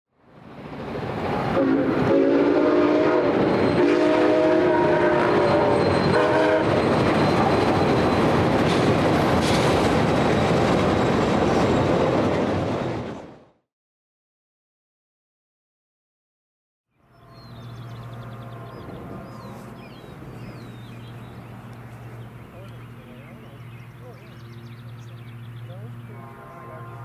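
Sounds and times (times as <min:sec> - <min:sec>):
train rumbling past: 0:00.2 - 0:13.6, 0:17.0 - 0:27.0
train horn blasts: 0:01.5 - 0:07.0, 0:17.1 - 0:20.7, 0:25.9 - 0:27.0.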